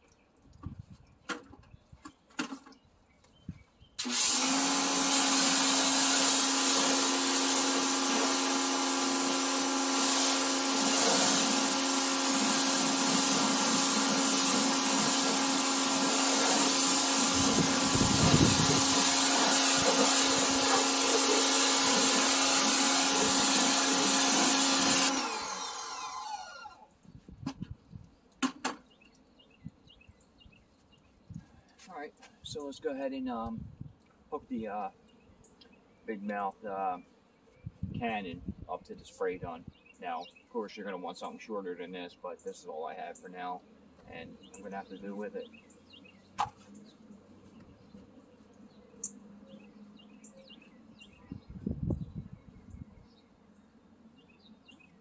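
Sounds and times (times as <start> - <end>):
water spray hissing: 4.0 - 26.7
pressure washer motor hum: 4.0 - 26.8.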